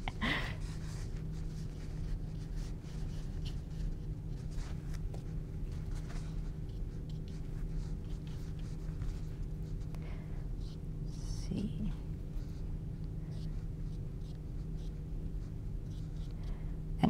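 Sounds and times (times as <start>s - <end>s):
steady low hum: 0.0s - 17.0s
paintbrush brushing on canvas: 0.6s - 9.9s.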